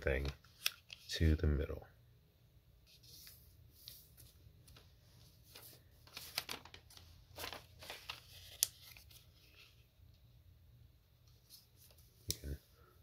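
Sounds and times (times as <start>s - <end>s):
paper rustling and crinkling: 2.9s - 9.8s
sharp paper crackle: 5.5s - 9.6s.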